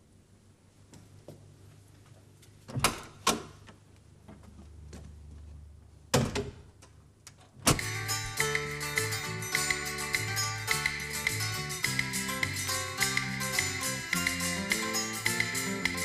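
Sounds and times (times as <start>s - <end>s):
music: 7.7s - 16.0s.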